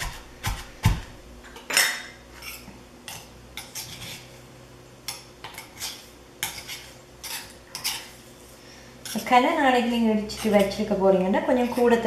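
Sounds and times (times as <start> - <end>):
metal spoon scraping stone mortar: 2.4 - 4.3, 5.4 - 8.2, 9.0 - 9.4, 10.2 - 12.0.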